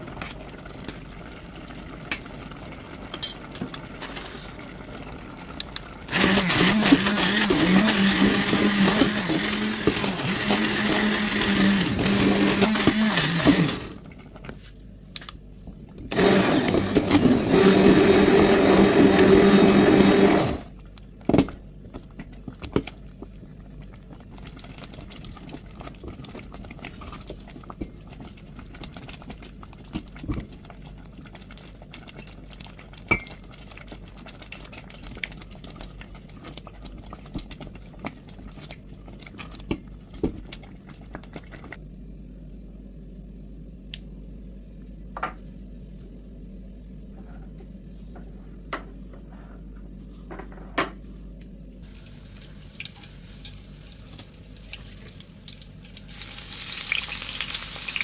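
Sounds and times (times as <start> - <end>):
stick blender in metal pot: 6.1 - 14.0, 16.1 - 20.7.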